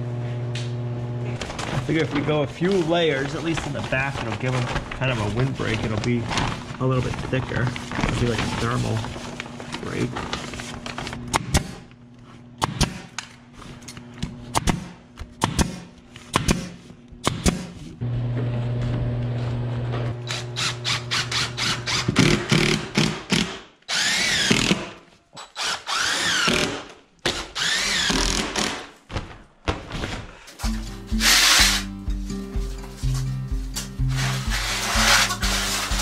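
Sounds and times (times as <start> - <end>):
impact driver whining: 20.2 - 28.9, 30.6 - 31.9.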